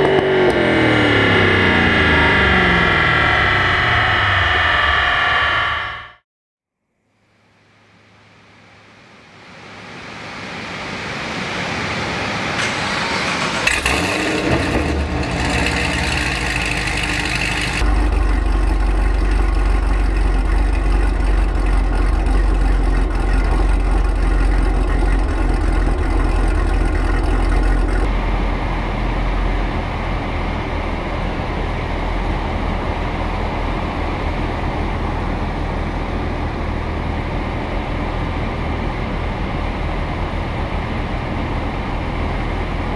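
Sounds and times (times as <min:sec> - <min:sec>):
car engine idling: 0:10.4 - 0:42.9.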